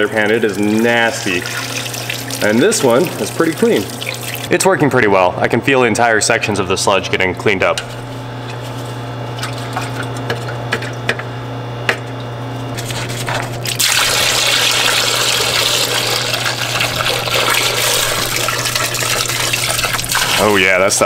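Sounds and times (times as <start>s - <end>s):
steady low hum: 0.0s - 21.0s
liquid draining into plastic pan: 0.4s - 4.5s, 13.6s - 20.7s.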